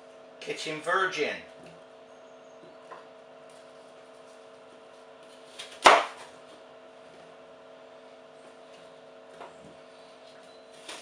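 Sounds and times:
knife chopping on wooden board: 5.5 - 6.3.

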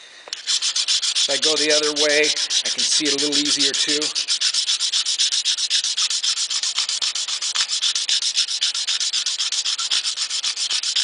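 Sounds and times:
file rasping on steel: 0.4 - 11.0.

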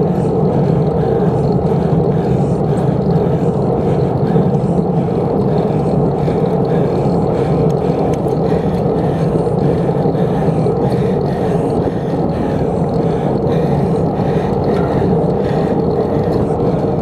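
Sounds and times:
bicycle tyre and road noise: 0.0 - 17.0.

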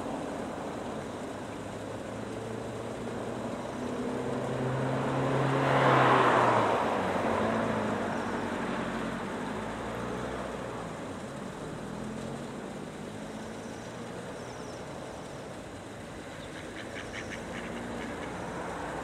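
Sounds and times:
motor vehicle passing by: 2.2 - 14.8, 16.5 - 19.0.

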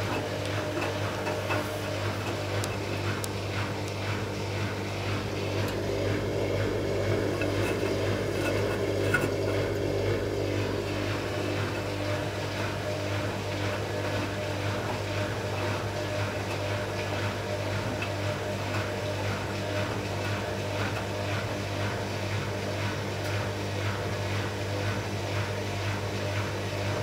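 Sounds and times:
washing machine motor hum: 0.0 - 27.0.

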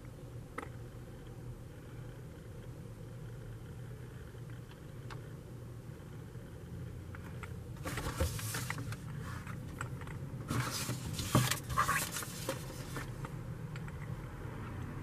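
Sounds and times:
steady low hum: 0.0 - 15.0
paper rustling and scraping: 7.8 - 9.6, 10.5 - 13.2.

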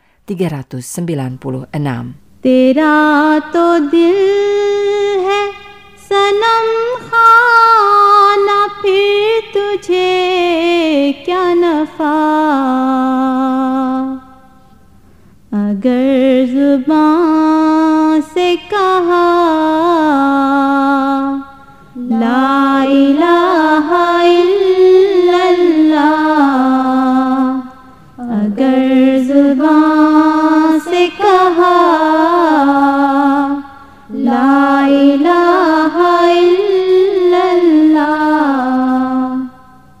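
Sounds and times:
person singing: 22.0 - 39.6.

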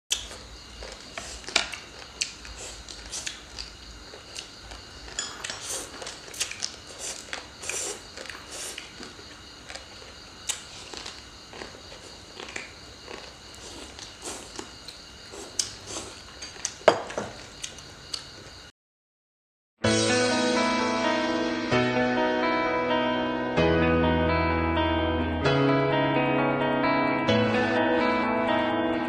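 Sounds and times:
crunching and biting food: 0.1 - 18.6.

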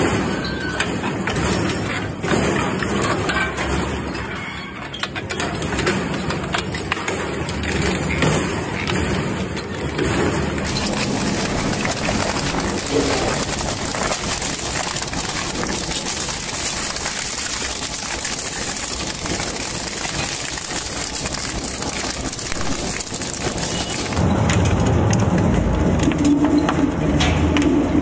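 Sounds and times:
shredder crunching metal: 5.4 - 24.2
shredder deep drone with hum: 10.5 - 16.0.

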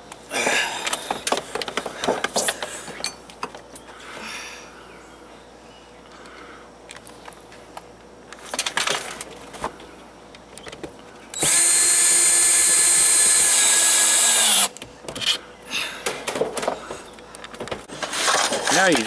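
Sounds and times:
cordless drill running: 11.4 - 14.7.

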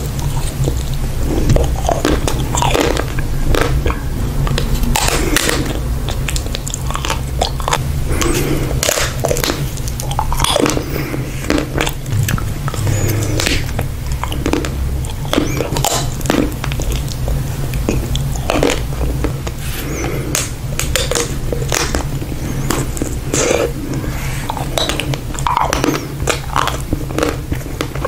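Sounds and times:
chewing: 0.0 - 28.0
ice cream shell cracking: 0.0 - 28.0
wet mouth and lip sounds: 0.0 - 28.0.

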